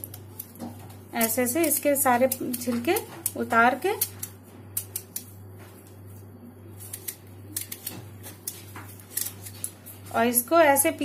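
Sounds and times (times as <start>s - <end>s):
knife scraping rind: 0.0s - 5.4s, 6.8s - 10.0s
steady low hum: 0.0s - 11.0s.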